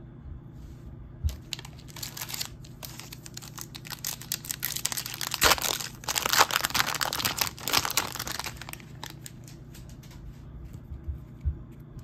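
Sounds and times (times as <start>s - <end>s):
trading cards shuffling: 1.3s - 9.6s.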